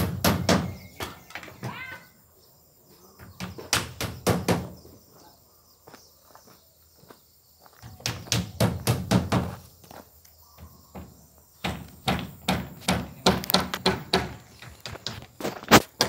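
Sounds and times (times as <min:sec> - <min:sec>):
hammer driving nails into plywood: 0:11.6 - 0:15.1.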